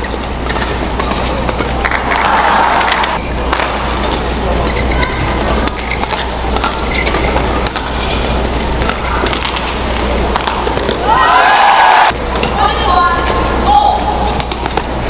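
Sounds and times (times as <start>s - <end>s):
crowd hubbub: 0.0s - 15.0s
racket striking shuttlecock: 5.6s - 8.1s, 8.8s - 11.0s
shoe squeaks on court: 6.8s - 7.5s.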